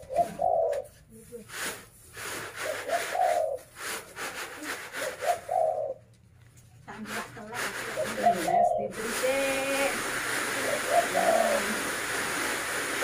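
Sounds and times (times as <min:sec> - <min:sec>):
dove cooing: 0:00.0 - 0:01.4, 0:02.5 - 0:03.9, 0:04.6 - 0:06.1, 0:07.7 - 0:12.1
rice grain rattling in trays: 0:01.4 - 0:05.5, 0:06.9 - 0:13.0.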